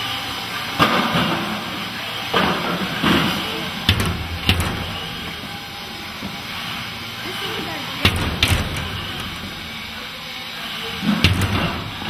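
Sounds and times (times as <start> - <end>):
robots knocking together: 3.8 - 6.3, 8.0 - 10.0, 11.0 - 12.0.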